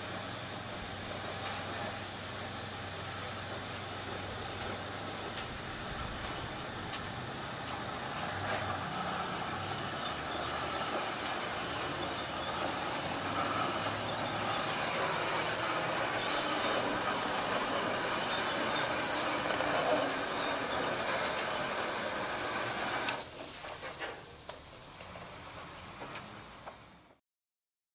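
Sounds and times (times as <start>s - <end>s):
roll-forming machine running: 0.0s - 26.2s
high repeating machine sound: 8.8s - 23.2s.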